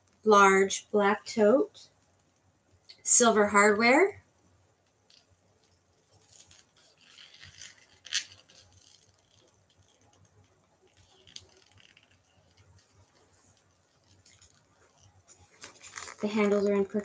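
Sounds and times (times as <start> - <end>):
leather bag rustling and creaking: 6.0 - 17.0.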